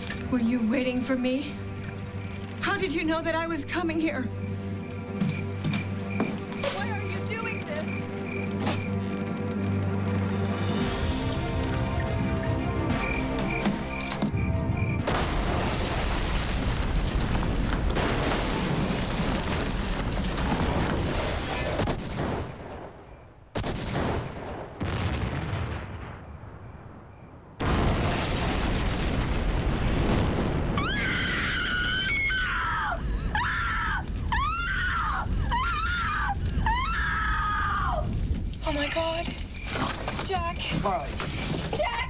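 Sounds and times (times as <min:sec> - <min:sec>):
fire roaring: 0:06.3 - 0:14.2, 0:15.0 - 0:23.0, 0:27.6 - 0:42.0
loud explosion blast: 0:15.0 - 0:22.9, 0:23.6 - 0:26.6, 0:27.6 - 0:31.5
woman screaming: 0:30.8 - 0:38.1.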